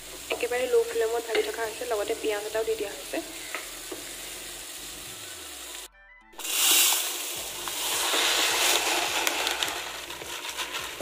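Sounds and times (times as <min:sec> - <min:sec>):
rice grains pouring into steel bowl: 0:06.4 - 0:11.0.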